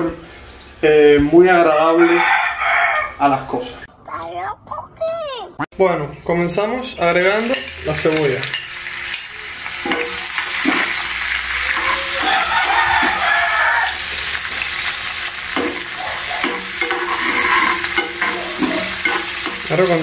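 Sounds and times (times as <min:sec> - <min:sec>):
onion sizzling in hot oil: 0:07.1 - 0:20.0
metal spoon scraping and tapping pan: 0:07.4 - 0:11.0, 0:15.5 - 0:20.0.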